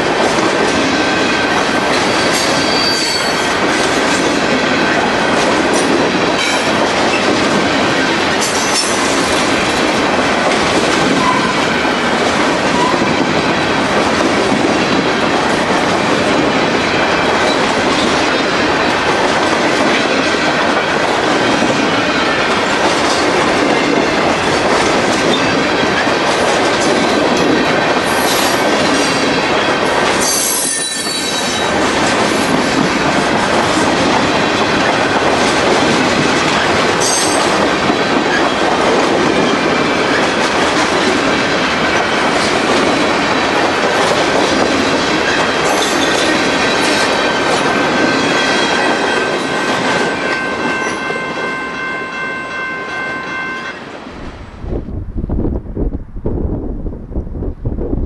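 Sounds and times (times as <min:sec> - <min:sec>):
train wheels clattering on rails: 0:00.0 - 0:54.0.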